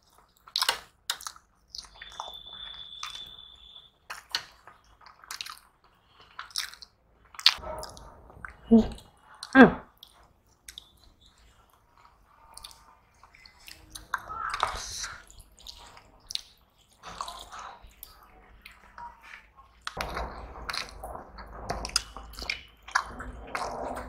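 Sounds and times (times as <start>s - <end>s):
wet squishing of rice by hand: 0.0s - 7.6s, 9.3s - 20.0s
chewing and mouth clicks: 0.0s - 20.0s.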